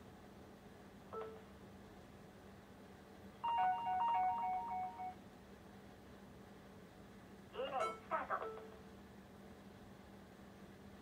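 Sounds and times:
faint steady hum: 0.0 - 11.0
electronic jingle of steady tones: 3.4 - 5.2.

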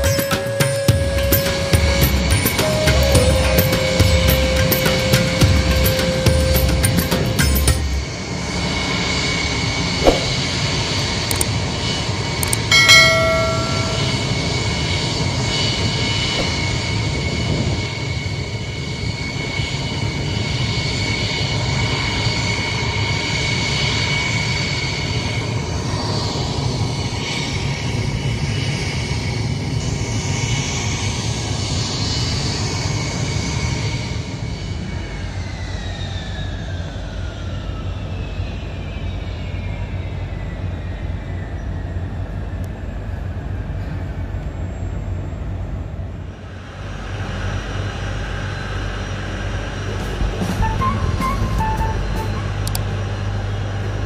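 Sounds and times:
jet engines whining and rumbling: 0.0 - 54.0
short loud tone: 12.5 - 14.5, 50.1 - 52.9.

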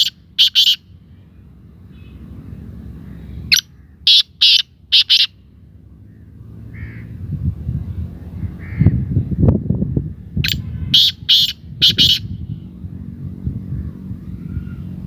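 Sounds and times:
francolin harsh rasping calls: 0.0 - 1.0, 3.0 - 5.4, 10.4 - 12.3.

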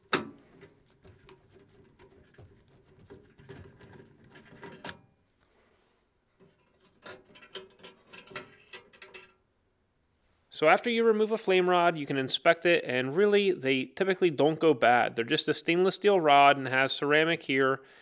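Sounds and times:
screwdriver clicking and scraping: 0.5 - 5.0.

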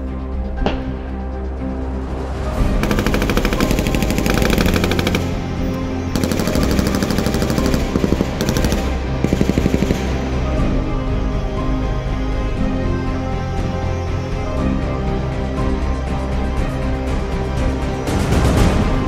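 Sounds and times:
background music: 0.0 - 19.0
automatic gunfire bursts: 2.8 - 10.4.

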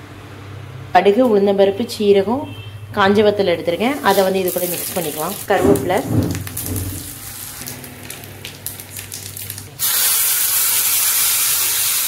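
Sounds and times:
seeds crackling in hot oil: 3.8 - 5.6, 6.4 - 12.0
loud hissing sizzle: 6.5 - 12.0.

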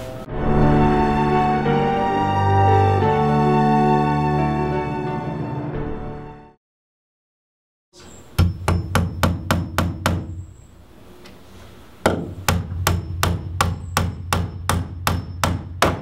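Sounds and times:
hammer striking wood: 8.4 - 10.4, 12.0 - 16.0.

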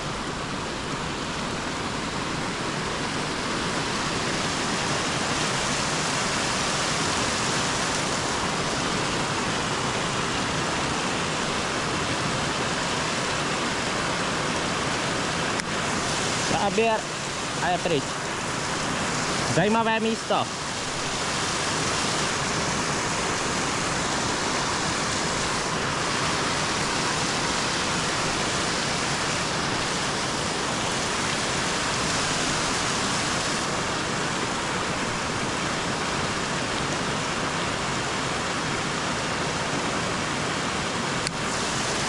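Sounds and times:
river water rushing over rocks: 0.0 - 42.0.

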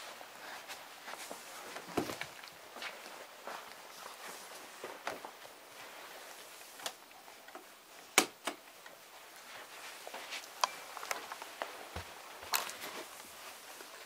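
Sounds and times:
low background hiss: 0.0 - 14.0.

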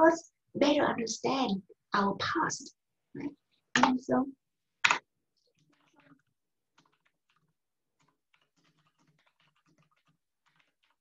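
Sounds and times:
keyboard typing: 4.8 - 11.0.

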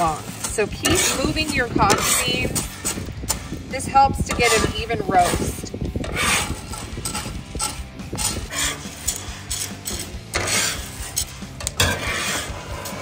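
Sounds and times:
coffee beans crackling: 0.0 - 5.6, 6.3 - 13.0
coffee beans rattling on metal: 0.0 - 13.0
metal spatula scraping griddle: 0.0 - 13.0.

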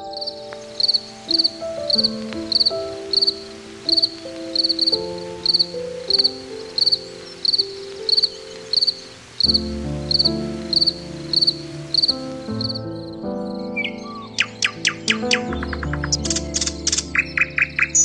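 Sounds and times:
cricket chirping: 0.0 - 18.0
soft background music: 0.0 - 18.0.

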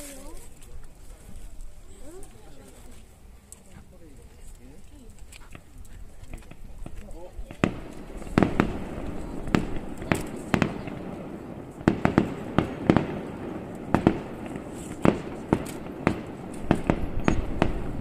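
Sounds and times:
fireworks bursting: 6.2 - 18.0.

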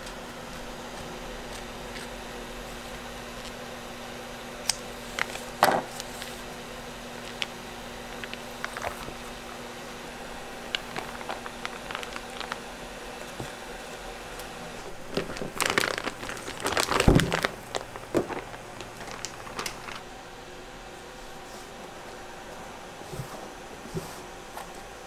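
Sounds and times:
plastic bag crinkling: 5.0 - 6.5, 7.1 - 9.5, 10.2 - 13.5, 14.8 - 20.1.

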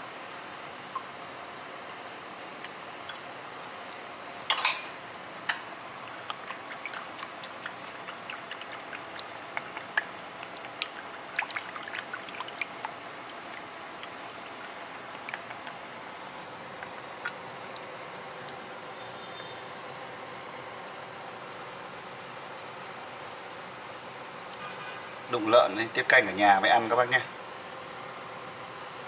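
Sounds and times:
ladle and bowls clinking: 4.5 - 5.0.

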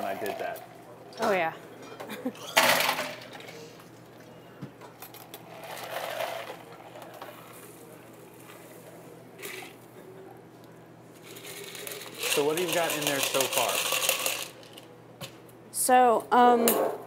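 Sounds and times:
cocktail pouring through strainer: 11.3 - 14.6
ice rattling: 11.3 - 14.7
cocktail shaker tin clatter: 11.3 - 14.8.

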